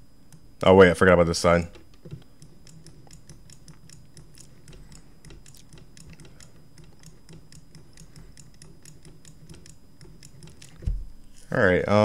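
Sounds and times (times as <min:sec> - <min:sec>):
faint steady hum: 0:00.0 - 0:12.0
mouse and keyboard clicking: 0:01.7 - 0:10.9.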